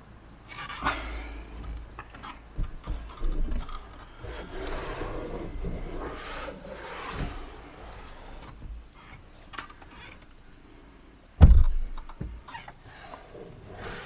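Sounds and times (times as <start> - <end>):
fabric rustling and rubbing: 3.1 - 9.1.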